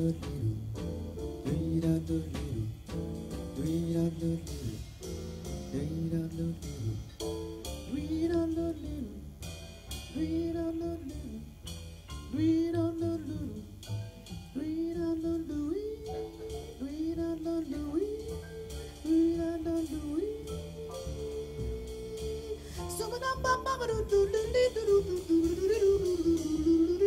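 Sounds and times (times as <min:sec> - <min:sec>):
man singing: 0:00.0 - 0:00.8, 0:01.4 - 0:02.9, 0:03.6 - 0:04.8, 0:05.7 - 0:07.1, 0:07.8 - 0:09.2, 0:10.1 - 0:11.5, 0:12.3 - 0:13.7, 0:14.5 - 0:27.0
double bass: 0:00.0 - 0:27.0
drums: 0:00.0 - 0:27.0
piano: 0:00.0 - 0:27.0.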